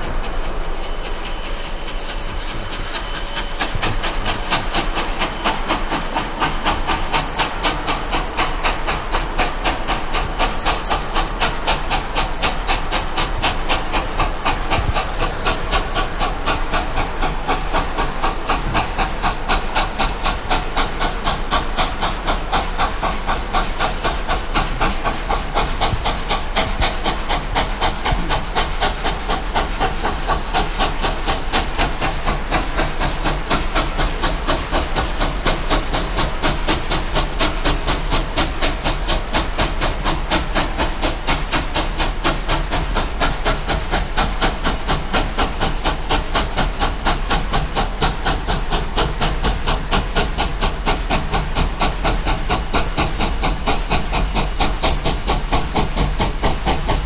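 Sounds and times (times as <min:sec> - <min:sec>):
steam hiss: 0:00.0 - 0:57.0
steam locomotive chuffing: 0:00.0 - 0:57.0.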